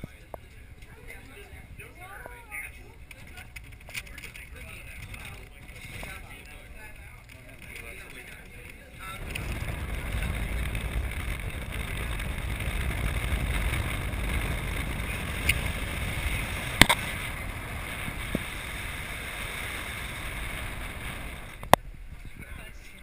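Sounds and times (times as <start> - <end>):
wind around cabin: 0.0 - 23.0
cable car cabin rumbling: 9.0 - 21.8.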